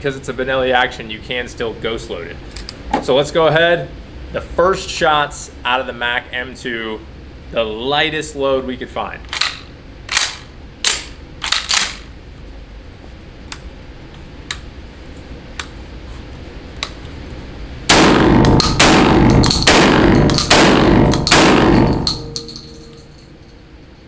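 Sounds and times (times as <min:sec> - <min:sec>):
gun handling clicks: 0:09.3 - 0:12.1
shotgun shots ringing indoors: 0:17.9 - 0:23.2.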